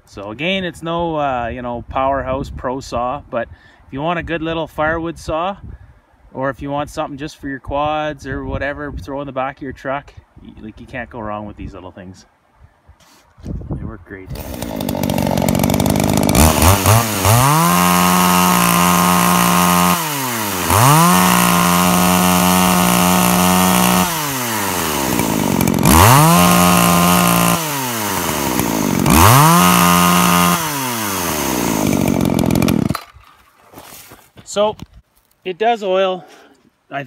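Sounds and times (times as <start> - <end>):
chainsaw revving: 14.3 - 33.2.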